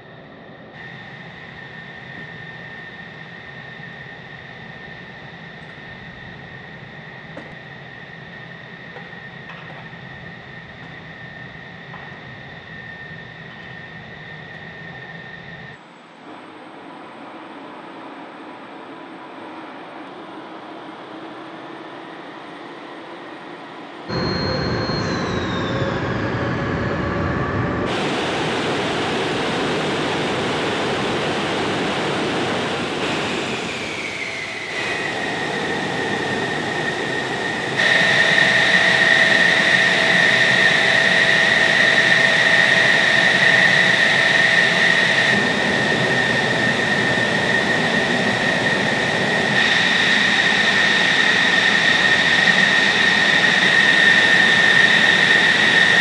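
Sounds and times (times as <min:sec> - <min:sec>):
jet engine idling: 0:24.1 - 0:56.0.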